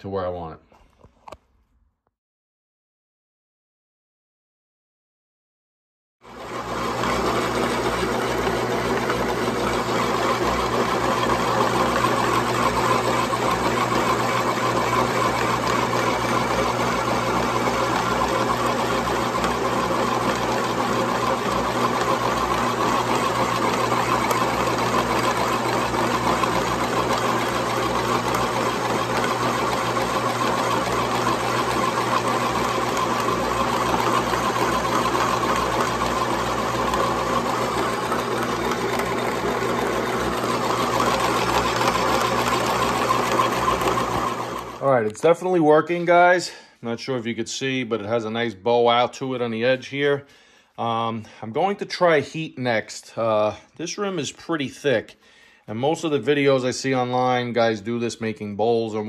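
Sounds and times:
metal lathe whirring: 0:06.3 - 0:44.8.

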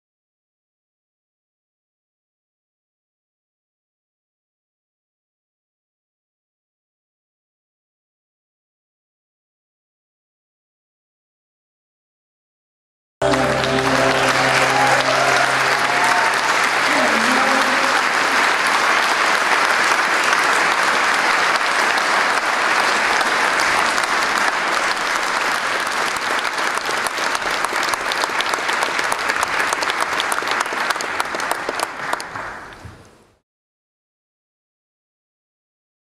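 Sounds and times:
audience applauding: 0:13.2 - 0:32.8.

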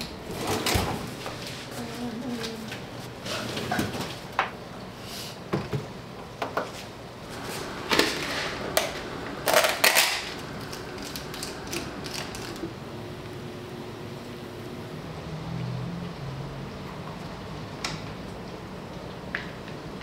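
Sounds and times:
plastic wrap crackling: 0:09.6 - 0:12.8.

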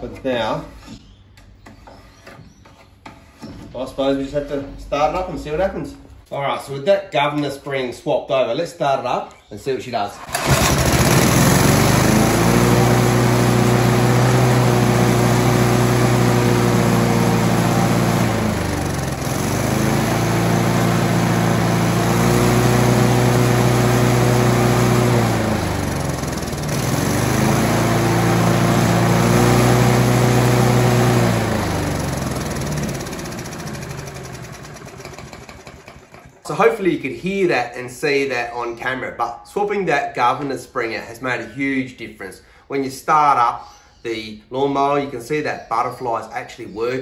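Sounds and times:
lawnmower engine revving: 0:10.2 - 0:36.8.

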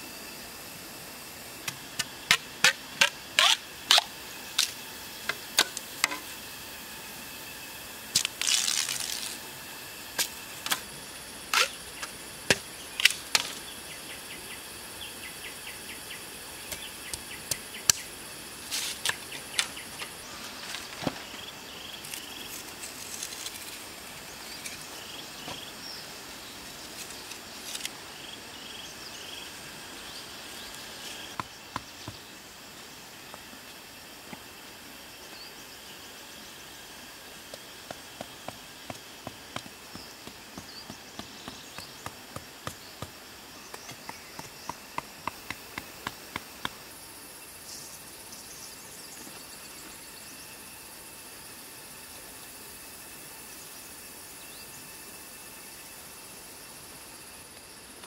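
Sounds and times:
steady hiss: 0:00.0 - 0:58.0
bamboo clacking: 0:01.6 - 0:06.3
bamboo splitting crackle: 0:01.6 - 0:06.3, 0:08.1 - 0:09.5, 0:10.1 - 0:10.9, 0:11.5 - 0:13.6, 0:18.7 - 0:21.4, 0:22.0 - 0:24.0, 0:26.9 - 0:28.0.

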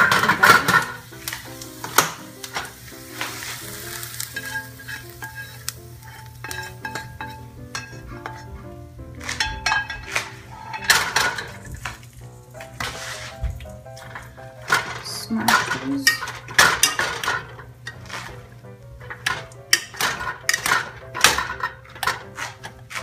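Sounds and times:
spoon scraping a steel skillet: 0:00.0 - 0:11.7, 0:12.8 - 0:13.4, 0:19.1 - 0:23.0
background music: 0:00.0 - 0:23.0.

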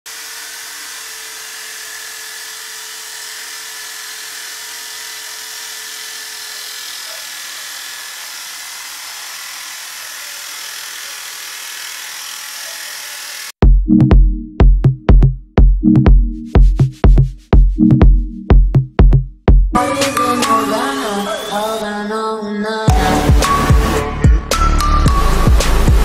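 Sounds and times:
drill cutting particleboard: 0:00.1 - 0:13.6.

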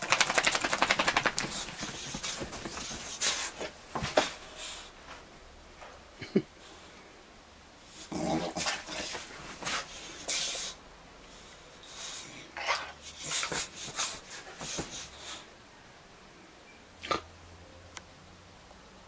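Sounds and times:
bedding rustling: 0:00.0 - 0:05.3, 0:08.4 - 0:10.8, 0:11.8 - 0:15.4
dog vocal noises: 0:00.1 - 0:04.3, 0:08.0 - 0:10.8, 0:11.9 - 0:15.4.

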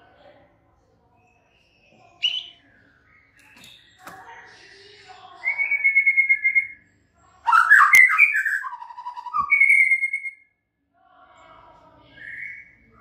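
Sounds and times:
bird singing whistles and trills: 0:01.2 - 0:04.0, 0:05.4 - 0:06.8, 0:07.5 - 0:10.5, 0:12.2 - 0:12.9.

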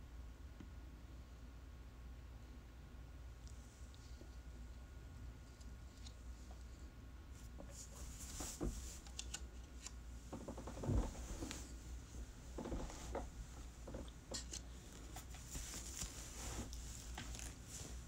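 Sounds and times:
low steady hum: 0:00.0 - 0:18.0
handling clicks and rustles: 0:12.6 - 0:18.0.

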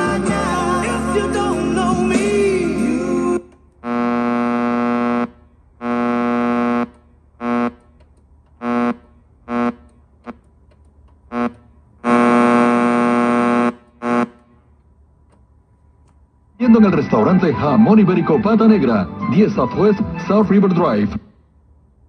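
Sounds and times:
radio buzz: 0:03.8 - 0:07.8, 0:08.6 - 0:09.8, 0:11.3 - 0:14.3.

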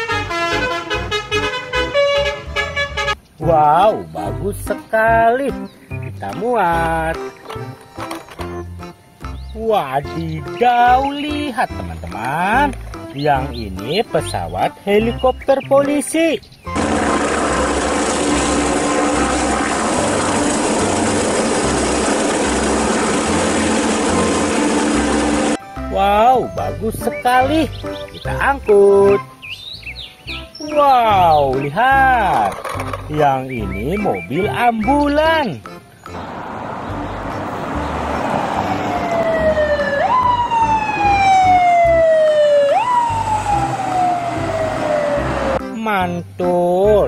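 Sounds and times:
helicopter turbine drone: 0:16.8 - 0:25.6
rotor throb: 0:16.8 - 0:25.6
ambulance siren: 0:37.7 - 0:45.6.

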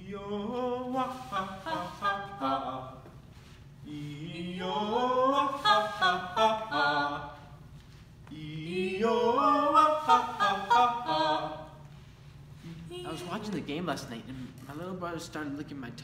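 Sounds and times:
unaccompanied voices singing: 0:00.0 - 0:03.2, 0:03.8 - 0:07.6, 0:08.2 - 0:12.0.

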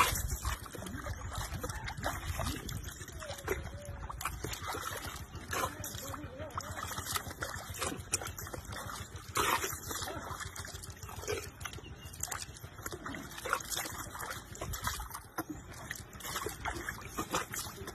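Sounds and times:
water splashing in a trough: 0:00.0 - 0:17.9.

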